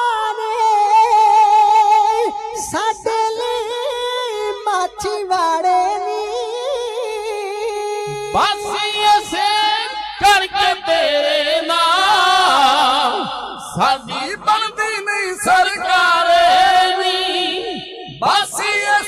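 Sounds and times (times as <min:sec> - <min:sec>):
men singing unaccompanied: 0:06.8 - 0:19.0.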